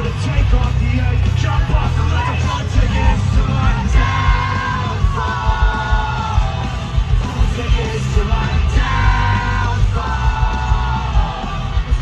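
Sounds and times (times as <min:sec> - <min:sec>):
live rock band playing: 0:00.0 - 0:12.0
singer's vocal phrases: 0:00.0 - 0:12.0.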